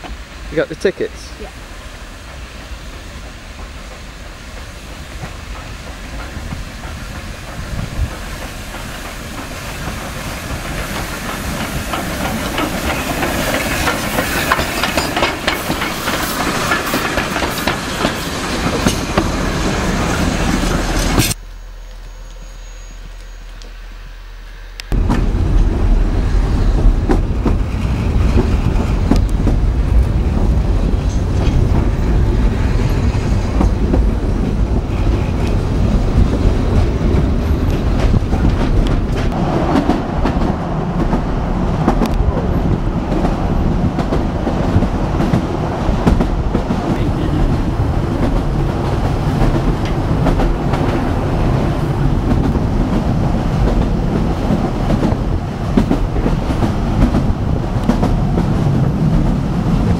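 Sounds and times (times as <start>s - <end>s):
train wheels rumbling on track: 0.0s - 59.9s
clicks and clacks of rails: 4.6s - 19.3s.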